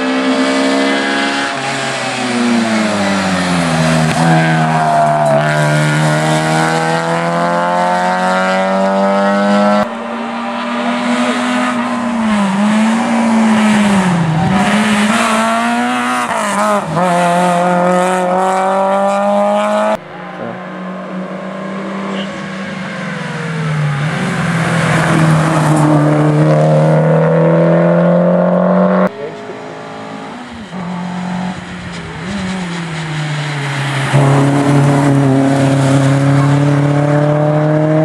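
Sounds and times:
rally car engines running hard: 22.1 - 38.0.

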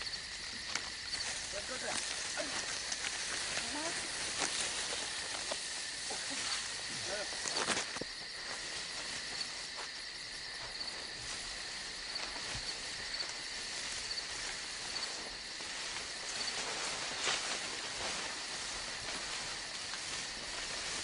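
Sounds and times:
insects calling: 0.0 - 21.0
faint snaps and rustles: 0.6 - 6.6.

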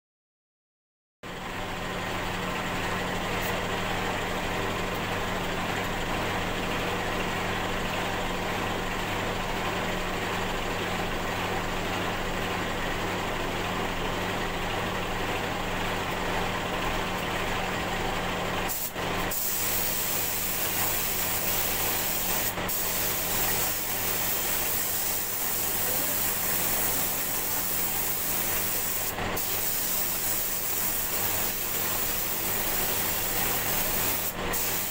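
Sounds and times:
paint spray gun hissing: 18.7 - 34.9.

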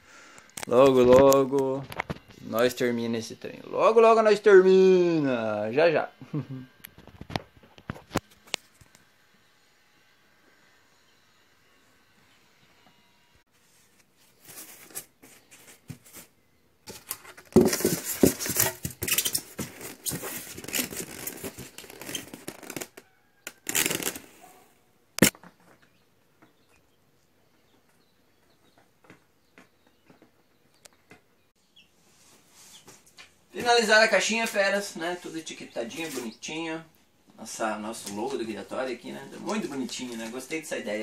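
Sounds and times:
foam and styrofoam rubbing squeaking: 17.5 - 24.6, 35.7 - 36.4.

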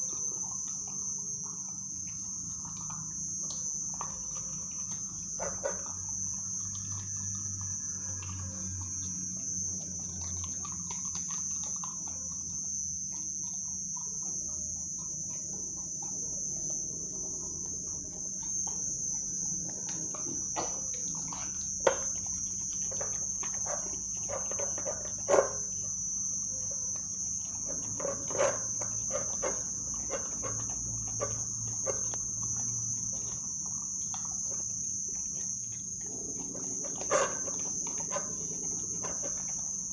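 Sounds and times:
crickets chirring: 0.0 - 39.9
puppy chewing and licking: 0.0 - 39.9.

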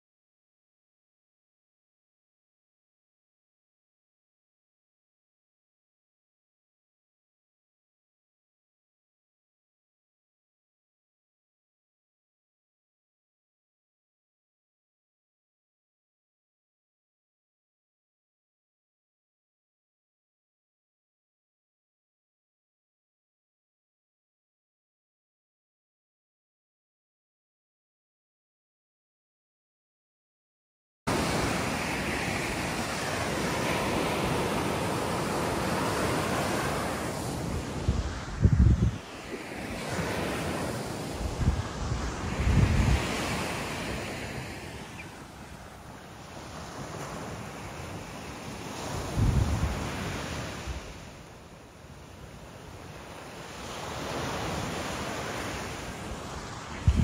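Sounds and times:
wind on microphone: 31.1 - 51.2, 52.3 - 57.0
surf washing onto beach: 31.1 - 57.0.

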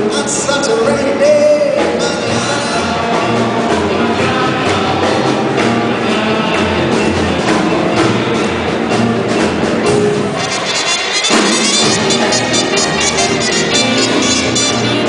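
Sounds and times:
big band playing: 0.0 - 15.0.

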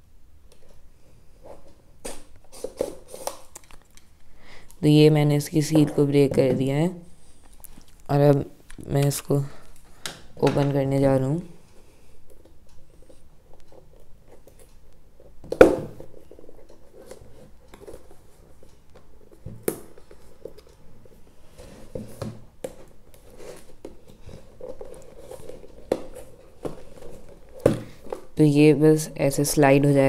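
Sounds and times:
cardboard box rustling and scraping: 23.2 - 28.2.

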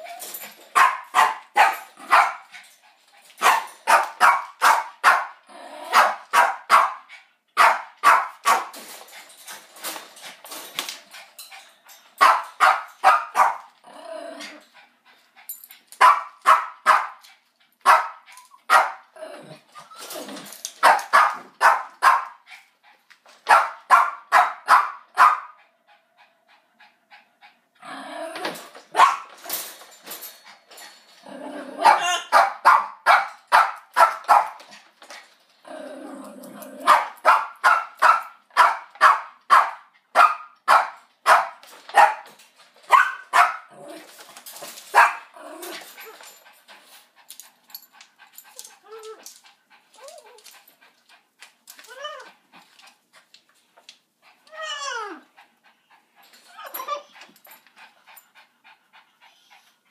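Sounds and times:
dog barking: 0.8 - 2.4, 3.4 - 8.7, 12.2 - 13.6, 16.0 - 17.2, 17.9 - 19.0, 20.8 - 22.4, 23.5 - 25.6, 29.0 - 29.3, 31.8 - 34.6, 36.9 - 42.2, 42.9 - 43.7, 45.0 - 45.3
dog growling: 5.4 - 6.0, 13.8 - 14.8, 19.2 - 20.5, 27.8 - 28.7, 31.2 - 32.2, 35.6 - 36.9, 43.7 - 44.2, 45.3 - 46.2.

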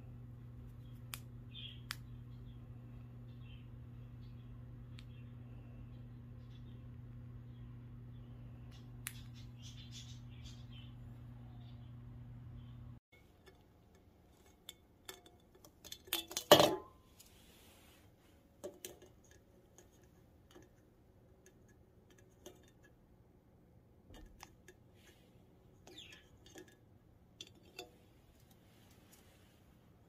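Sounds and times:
drink can clattering onto wooden table: 16.2 - 16.9
bird pecking at metal can: 18.6 - 23.0.

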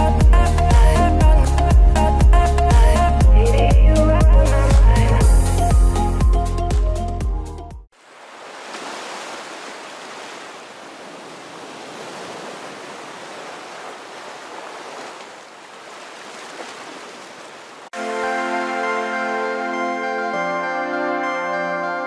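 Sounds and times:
music: 0.0 - 7.9, 18.0 - 22.0
waves rushing: 7.9 - 17.9.

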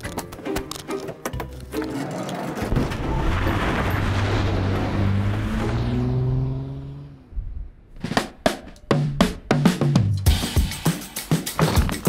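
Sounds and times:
engine hum: 1.2 - 9.6.

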